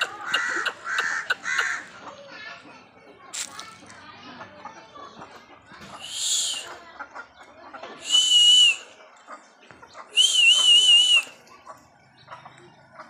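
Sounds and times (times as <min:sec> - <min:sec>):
high whistled call: 0:06.0 - 0:06.8, 0:08.0 - 0:09.0, 0:10.1 - 0:11.5.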